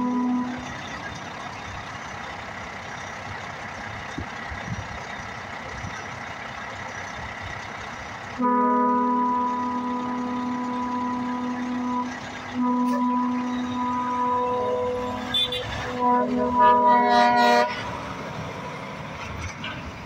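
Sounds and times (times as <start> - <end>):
air horn blast: 0.0 - 0.7, 8.4 - 17.9
truck engine idling: 0.0 - 20.0.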